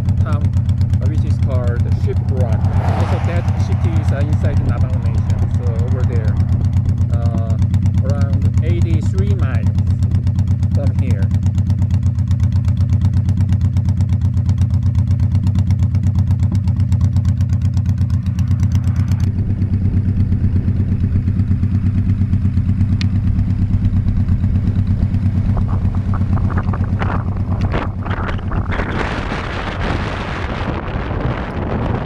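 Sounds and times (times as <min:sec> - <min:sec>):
motorcycle engine throbbing: 0:00.0 - 0:32.0
wind noise on microphone: 0:01.0 - 0:09.6, 0:23.7 - 0:32.0.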